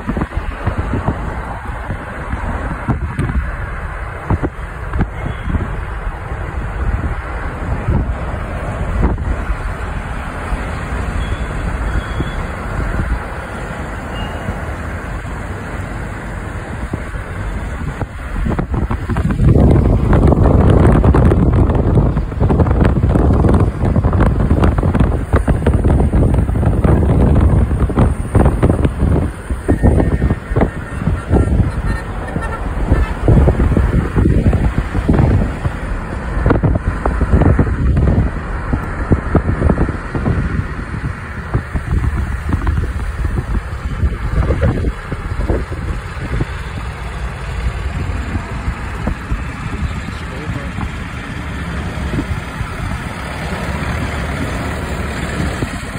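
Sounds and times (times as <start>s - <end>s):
car tyres rumbling: 0.0s - 55.9s
wind noise: 0.0s - 55.9s.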